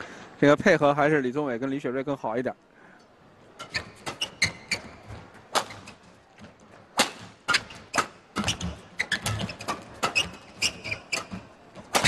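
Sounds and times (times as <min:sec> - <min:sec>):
court shoes squeaking: 0:03.5 - 0:12.0
rackets hitting shuttlecock: 0:03.6 - 0:12.0.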